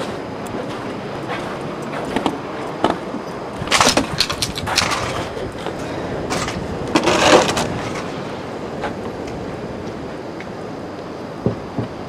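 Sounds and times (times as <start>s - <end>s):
outdoor background hiss: 0.0s - 12.0s
debris knocking and clattering: 3.6s - 5.4s, 6.3s - 8.2s.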